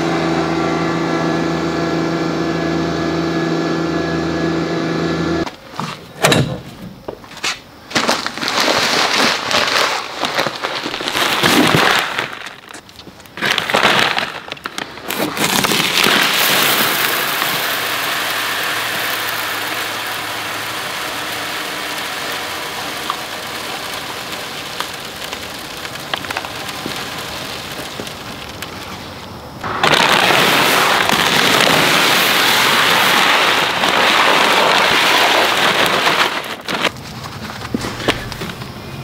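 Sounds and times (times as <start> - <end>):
granules pouring into plastic hopper: 7.9 - 12.8, 13.4 - 37.0.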